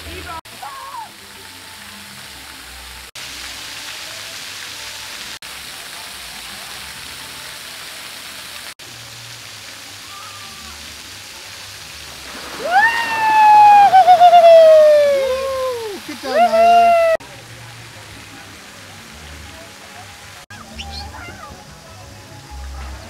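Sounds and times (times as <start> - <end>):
person crying out: 12.6 - 17.2.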